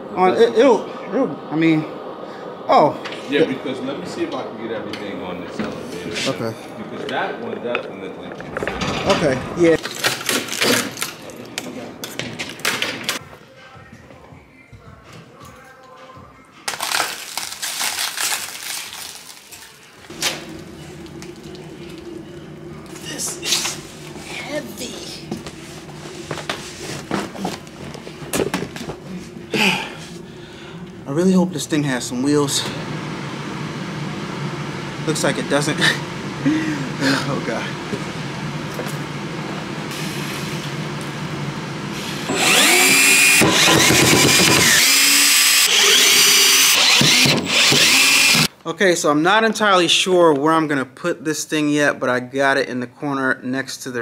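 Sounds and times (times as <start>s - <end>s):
steady low hum: 0.0s - 13.3s, 20.0s - 48.5s
plastic wrap crackling: 16.6s - 20.1s
power drill driving screws: 42.3s - 48.5s.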